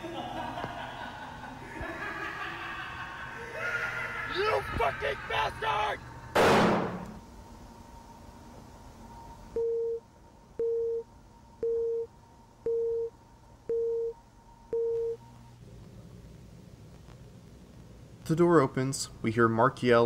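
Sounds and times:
gunshot bang: 6.4s - 7.1s.

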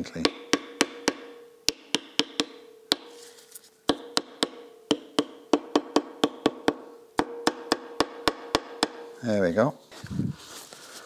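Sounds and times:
mallet tapping on steel: 0.1s - 3.2s, 3.9s - 9.2s.

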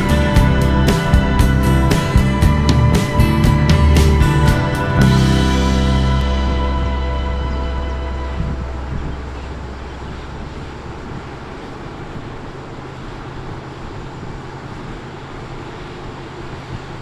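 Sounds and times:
car engine hum: 0.0s - 16.9s
road noise: 0.0s - 17.0s.

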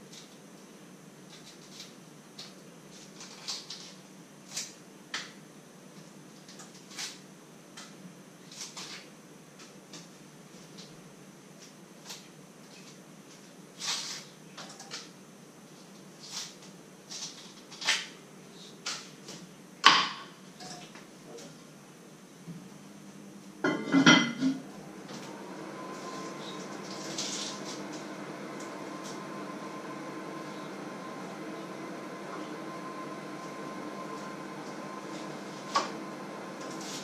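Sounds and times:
steady hum: 18.2s - 37.0s.

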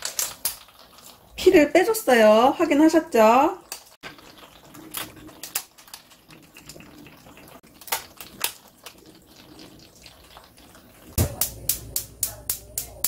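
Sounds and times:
crab shells clicking in metal sink: 0.0s - 1.0s, 3.6s - 7.0s, 7.6s - 10.5s, 11.2s - 13.0s.

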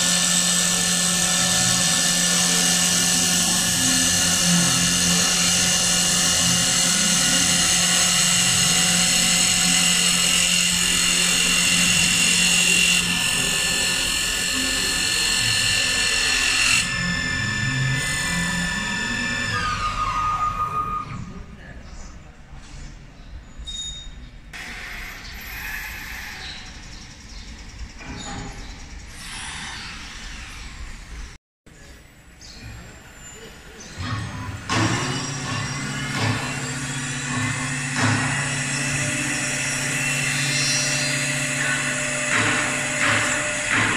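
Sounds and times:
wood lathe cutting: 0.0s - 21.0s, 34.6s - 43.9s
machine whine with high tones: 0.0s - 21.3s, 32.7s - 43.9s.

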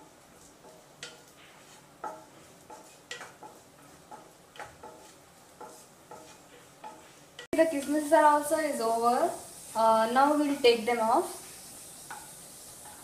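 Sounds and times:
wooden spatula tapping a frying pan: 0.0s - 8.0s, 12.0s - 13.0s.

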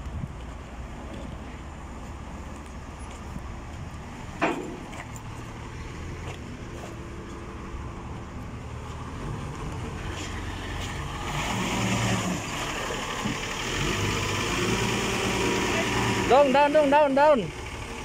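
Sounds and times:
forklift engine running: 0.1s - 18.0s.

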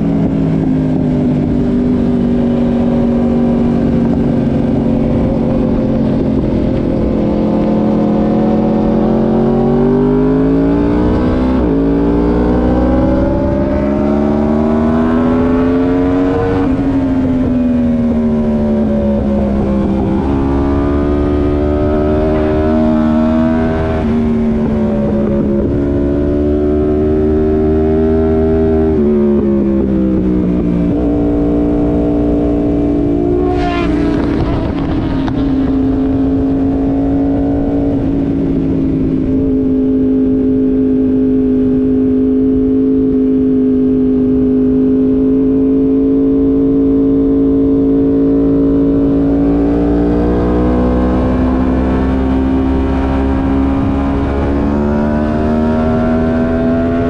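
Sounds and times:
motorcycle engine at speed: 0.0s - 57.0s
wind rushing over microphone: 0.0s - 57.0s.

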